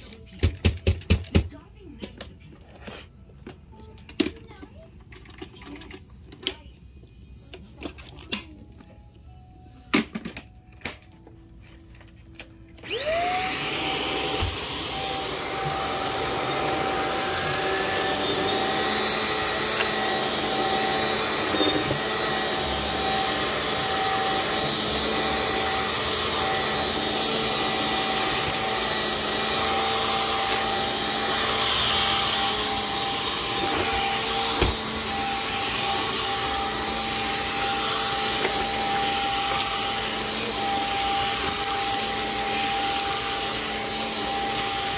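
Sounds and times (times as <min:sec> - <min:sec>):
vacuum cleaner motor whine: 0:10.0 - 0:44.9
vacuum head rushing over carpet: 0:12.8 - 0:44.9.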